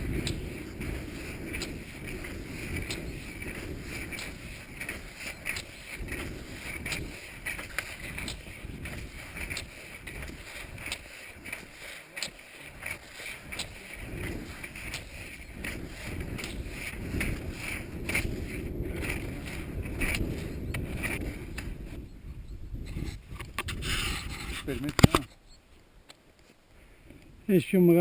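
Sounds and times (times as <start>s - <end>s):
skis crunching on snow: 0.0s - 22.0s.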